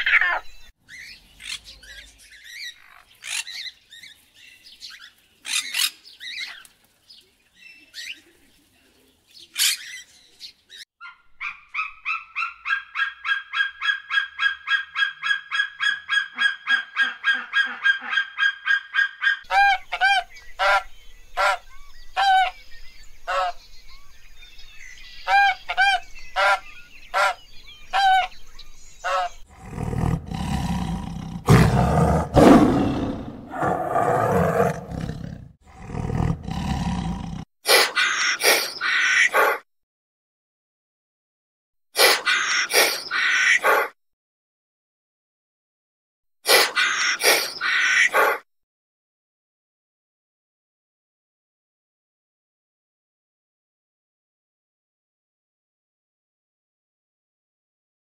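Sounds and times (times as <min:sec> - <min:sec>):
bird squawks: 0:11.0 - 0:22.6, 0:23.3 - 0:23.6, 0:25.3 - 0:28.4, 0:29.0 - 0:29.4, 0:37.7 - 0:39.6, 0:42.0 - 0:43.9, 0:46.5 - 0:48.4
bird honking calls: 0:15.8 - 0:22.6, 0:25.3 - 0:28.4, 0:29.0 - 0:29.4
rough animal call: 0:29.1 - 0:39.6.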